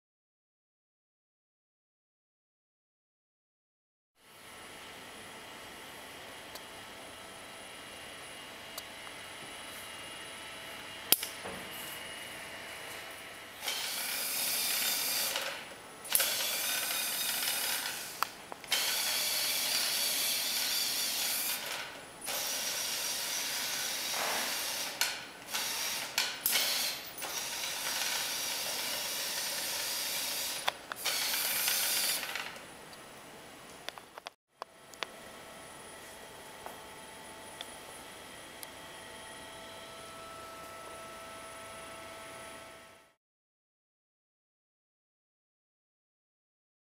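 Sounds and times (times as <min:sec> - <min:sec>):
electric gear motors whirring: 0:11.1 - 0:32.6.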